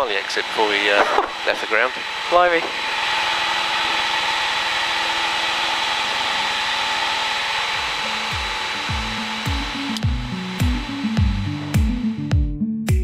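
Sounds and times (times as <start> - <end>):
propeller plane engine drone: 0.0 - 12.3
background music with bass: 7.8 - 13.0.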